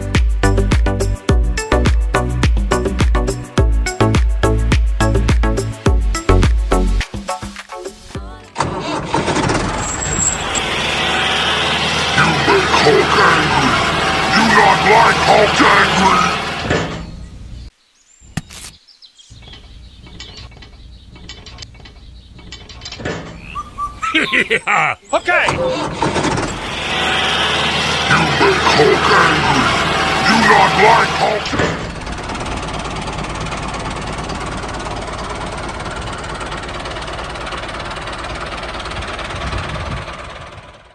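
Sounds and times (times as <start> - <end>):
small tractor engine chugging: 8.6 - 17.1, 25.1 - 40.9
low rolling rumble: 25.8 - 40.9.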